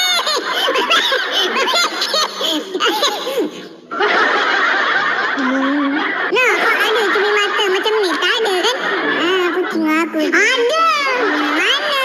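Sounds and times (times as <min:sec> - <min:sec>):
man laughing hard: 0:00.0 - 0:06.2.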